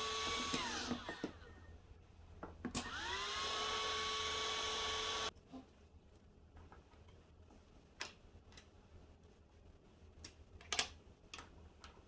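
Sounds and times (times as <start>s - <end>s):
heat gun blower whining: 0.0s - 1.4s, 2.8s - 5.3s.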